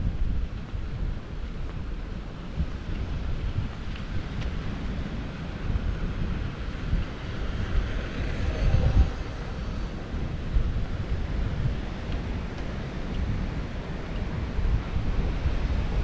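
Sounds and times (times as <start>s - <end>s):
wind buffeting microphone: 0.0s - 16.0s
sea surf: 4.4s - 16.0s.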